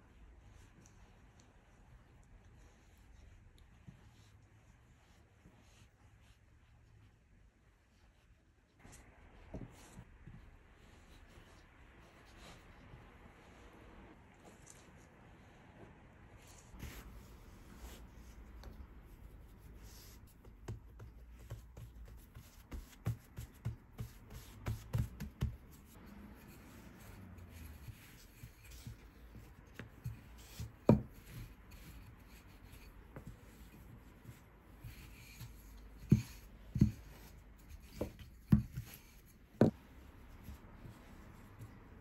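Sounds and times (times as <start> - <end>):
hands pressing dough: 16.7 - 42.0
rolling pin rolling dough: 16.7 - 42.0.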